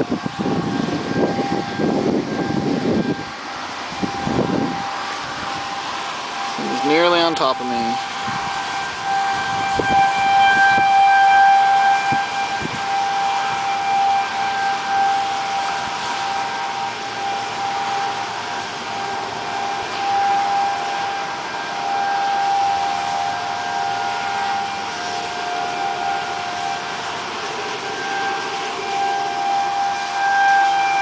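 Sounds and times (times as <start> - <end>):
warning siren wailing: 0.0 - 31.0.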